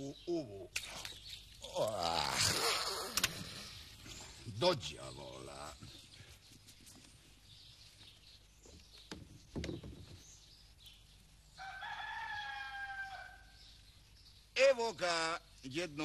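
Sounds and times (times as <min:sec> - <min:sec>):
soft knocks: 0:08.6 - 0:10.4
rooster crowing: 0:11.6 - 0:13.6.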